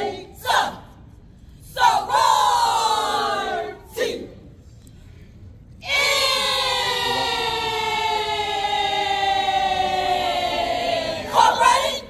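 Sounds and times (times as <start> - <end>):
voices holding a note in unison: 5.8 - 12.0.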